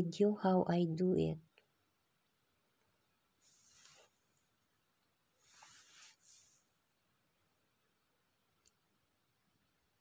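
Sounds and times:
scrape on wooden cutting board: 5.4 - 6.6.

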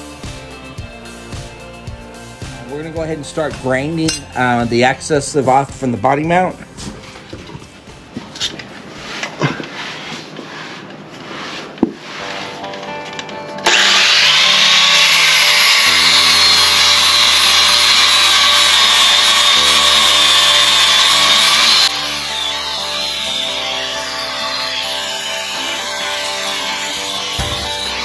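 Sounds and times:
power grinder grinding steel: 13.6 - 28.0.

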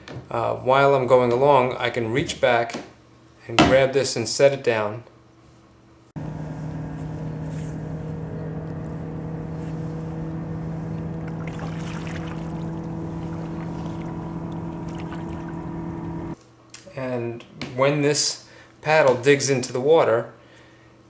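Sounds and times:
boat motor humming: 6.2 - 16.4.

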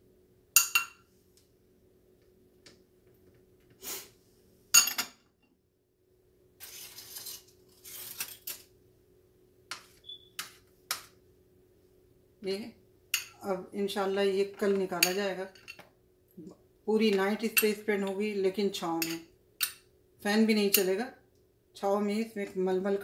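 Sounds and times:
metal spoon clinking glass bowl: 0.6 - 1.0, 4.8 - 5.2, 13.2 - 13.4
aluminium foil crinkling: 6.6 - 8.7.

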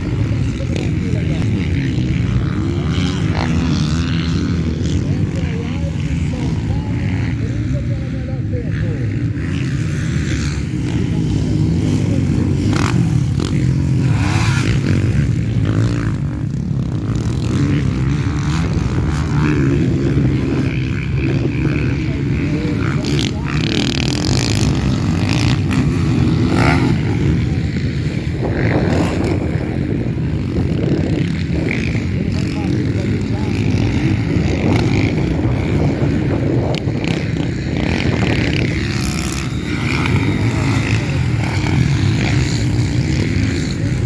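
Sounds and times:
dirt bike engines revving: 0.0 - 44.0.

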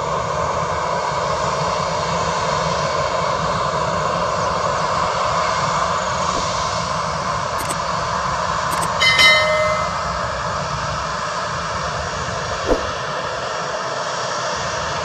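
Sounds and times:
short chime with click: 8.7 - 10.1.

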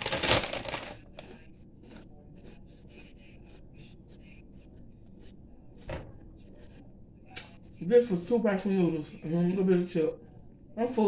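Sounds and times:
chips crunching while chewing: 0.0 - 2.0
thump: 5.9 - 6.2.

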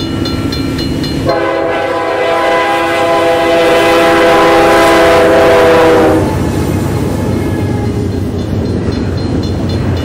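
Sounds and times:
train rumble passing: 0.0 - 10.0
locomotive air horn blast: 1.2 - 8.0.

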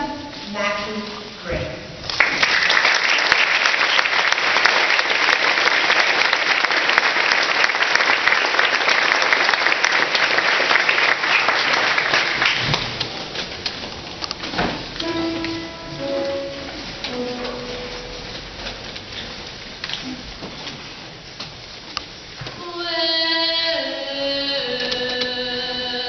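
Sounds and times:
audience applauding: 2.1 - 13.4.

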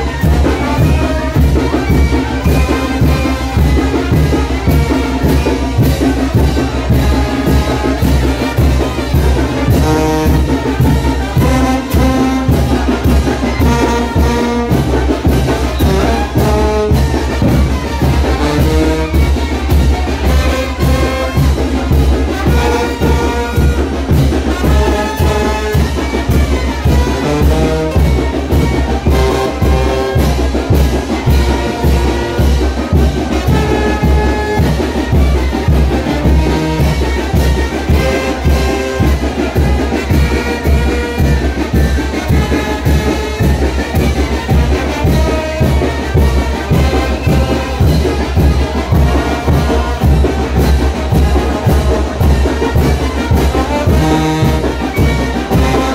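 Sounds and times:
brass band playing dance music: 0.0 - 55.9
steady drum beat: 0.0 - 55.9.

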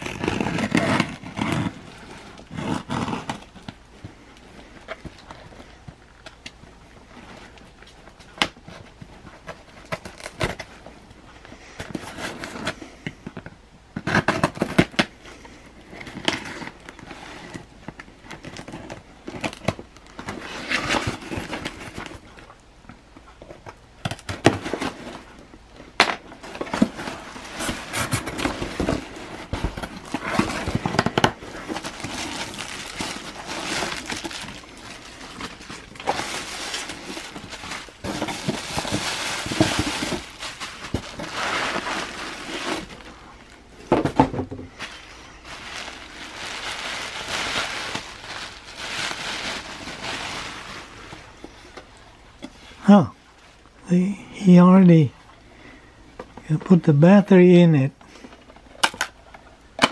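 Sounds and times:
bubble wrap rustling: 0.0 - 22.6, 23.2 - 53.9
cardboard flaps scraping: 26.4 - 43.2.

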